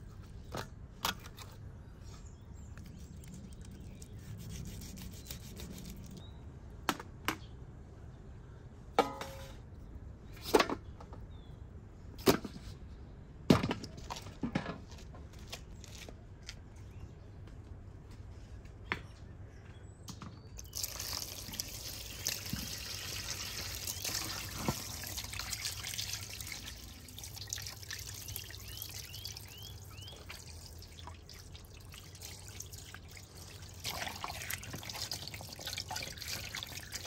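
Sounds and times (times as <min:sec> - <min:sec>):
quiet outdoor background: 0:00.0 - 0:37.0
knocks and clatters of kitchen utensils: 0:09.0 - 0:09.6.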